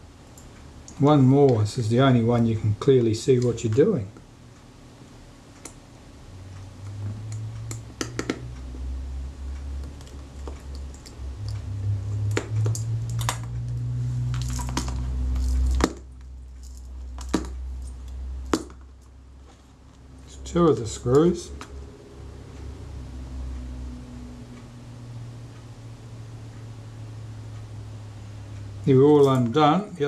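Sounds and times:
low handling rumble: 0:06.4 - 0:30.0.

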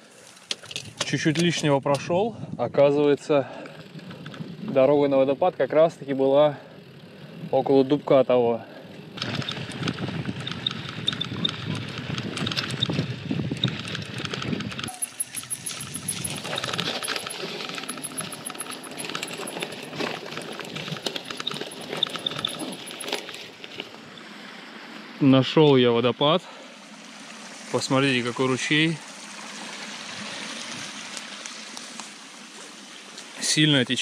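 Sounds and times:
mountain bike clattering: 0:03.5 - 0:24.0.

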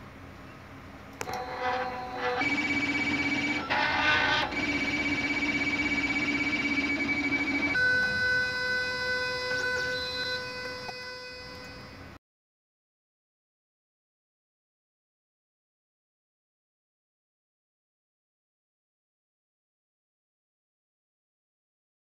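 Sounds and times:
stepper motors whining: 0:01.2 - 0:12.2.

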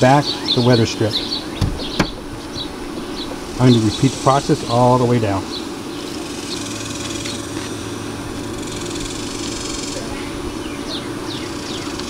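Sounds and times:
bird chirps: 0:00.0 - 0:04.4, 0:05.4 - 0:07.5, 0:09.9 - 0:12.0
engine hum: 0:00.0 - 0:12.0.

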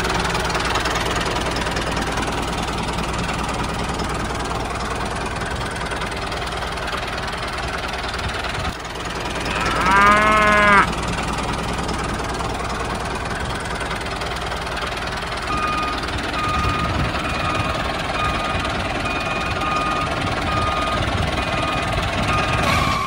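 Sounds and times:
tractor diesel engine running: 0:00.0 - 0:23.0
cow mooing: 0:09.4 - 0:10.9
reversing beeper: 0:15.5 - 0:23.0.

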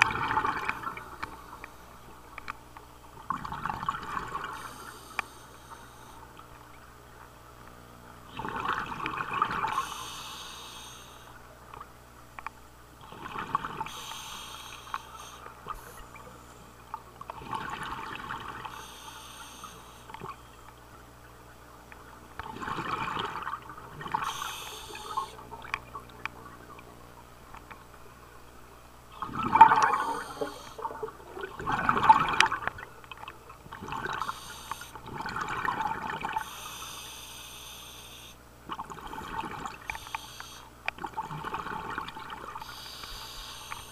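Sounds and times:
exhaled bubbles gurgling: 0:00.0 - 0:01.7, 0:03.1 - 0:05.0, 0:08.2 - 0:10.0, 0:13.0 - 0:14.3, 0:16.9 - 0:18.9, 0:21.3 - 0:36.7, 0:38.6 - 0:40.2, 0:40.9 - 0:43.9
diver inhaling through regulator: 0:04.5 - 0:06.2, 0:09.7 - 0:11.3, 0:13.8 - 0:16.2, 0:18.7 - 0:20.2, 0:24.2 - 0:25.4, 0:29.6 - 0:31.0, 0:34.1 - 0:35.0, 0:36.4 - 0:38.4, 0:39.8 - 0:40.7, 0:42.6 - 0:43.9.

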